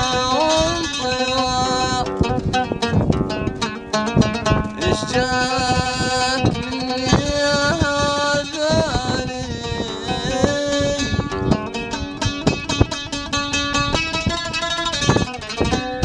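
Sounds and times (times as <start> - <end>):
plucked oud strings: 0.0 - 16.0.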